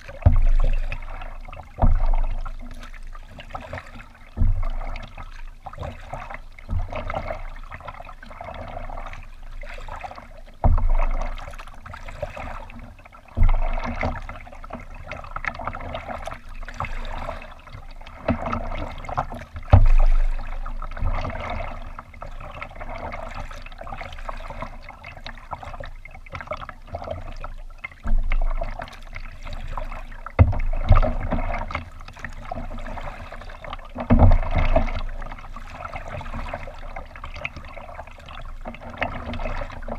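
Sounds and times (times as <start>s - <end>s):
water splashing against kayak hull: 0.0s - 39.9s
low thumps: 0.1s - 3.2s, 4.2s - 5.7s, 13.3s - 14.3s, 19.7s - 21.3s, 30.4s - 31.7s.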